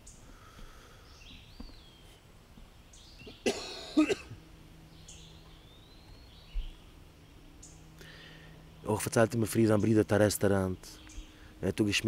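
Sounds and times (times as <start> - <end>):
faint bird calls: 0.0 - 12.0
man coughing: 3.4 - 4.4.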